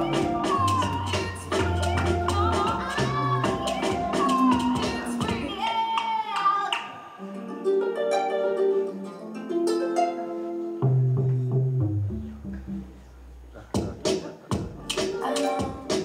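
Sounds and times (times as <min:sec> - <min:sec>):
deep bass: 0:00.0 - 0:05.3, 0:10.8 - 0:14.0
plucked string notes: 0:00.0 - 0:05.5, 0:07.2 - 0:16.0.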